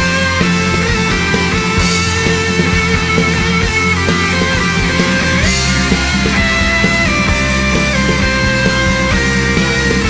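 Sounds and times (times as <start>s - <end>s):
rock band playing: 0.0s - 10.0s.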